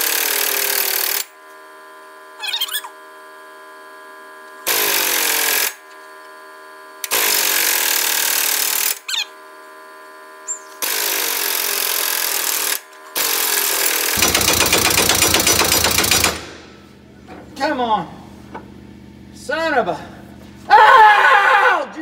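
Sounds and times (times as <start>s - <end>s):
air hammer on metal: 14.2s - 16.9s.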